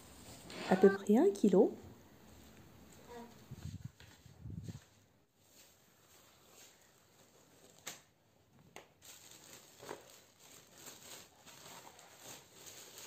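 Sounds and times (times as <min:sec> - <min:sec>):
plastic wrap crinkling: 0:03.9 - 0:08.2, 0:08.8 - 0:13.0.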